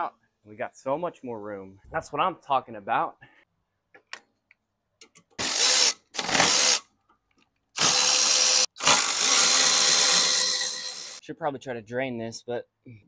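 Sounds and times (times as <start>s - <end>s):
power ratchet spinning: 5.4s - 6.8s, 7.8s - 11.2s.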